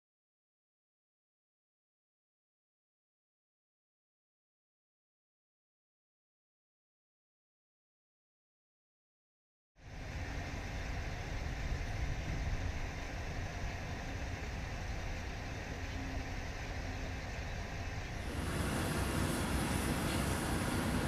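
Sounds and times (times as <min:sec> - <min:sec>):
distant machinery rumble: 0:09.8 - 0:21.0
cutting torch hissing: 0:18.2 - 0:21.0.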